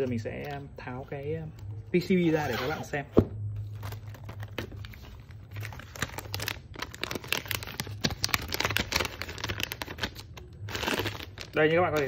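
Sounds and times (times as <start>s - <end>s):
plastic bag crinkling: 3.7s - 12.0s.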